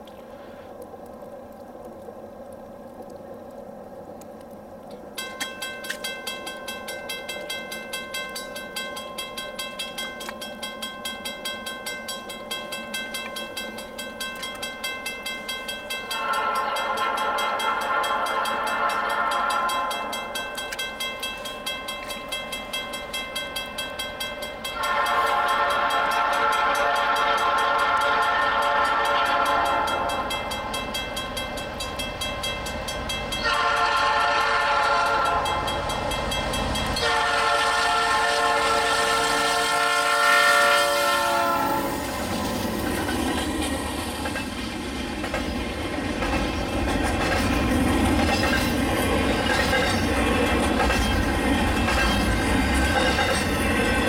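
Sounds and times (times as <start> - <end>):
freight train rumble and clatter: 5.1 - 54.0
locomotive air horn blasts: 16.1 - 20.2, 24.7 - 30.3, 33.4 - 35.8, 37.0 - 42.1.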